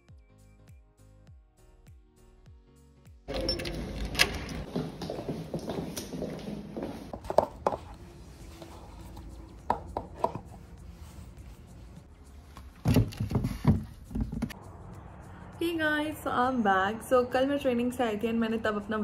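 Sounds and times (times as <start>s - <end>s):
shoe heels knocking on tiled floor: 4.7s - 7.9s.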